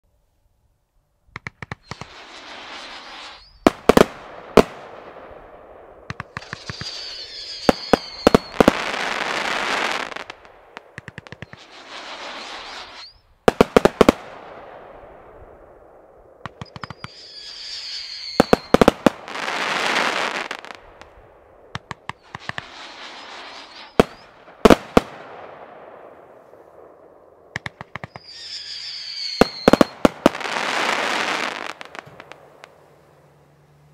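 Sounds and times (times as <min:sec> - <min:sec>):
firework sharp cracks: 0:01.3 - 0:32.9
hissing crackle: 0:01.4 - 0:33.4
falling firework whistle: 0:01.7 - 0:04.0, 0:06.1 - 0:10.4, 0:11.2 - 0:13.3, 0:16.5 - 0:20.8, 0:22.1 - 0:24.8, 0:27.8 - 0:32.7.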